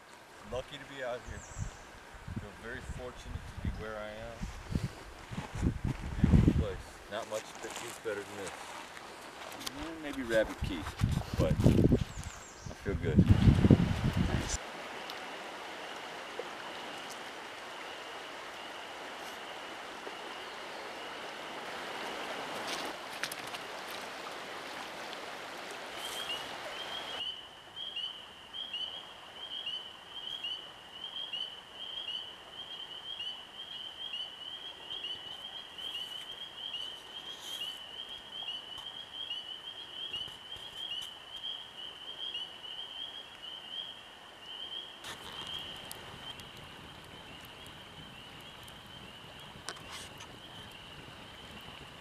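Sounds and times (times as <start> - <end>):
campfire crackling: 0.0 - 32.4, 33.2 - 52.0
river water rushing: 13.4 - 27.2
frogs peeping: 14.9 - 52.0.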